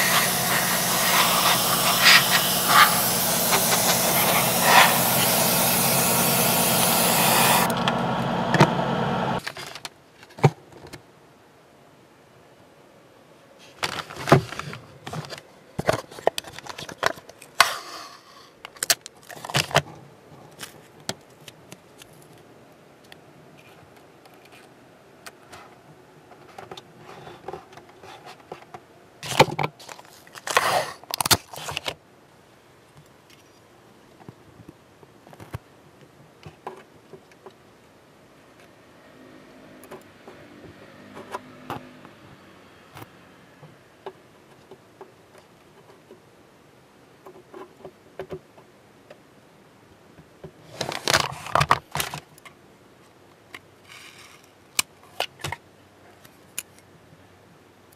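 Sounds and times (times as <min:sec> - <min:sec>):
masking tape rustling and crackling: 0:00.0 - 0:07.8.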